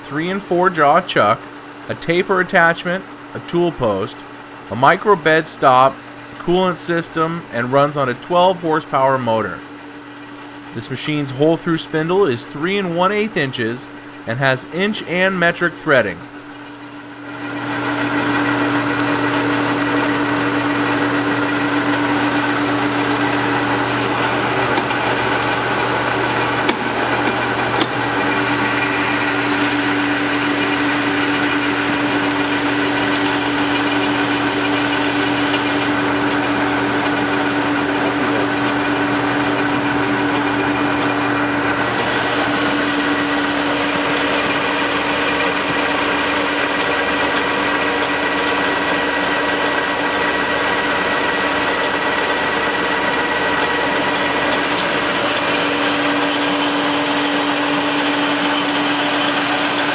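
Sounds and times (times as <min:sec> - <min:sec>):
lathe motor hum and whine: 0:00.0 - 0:59.9.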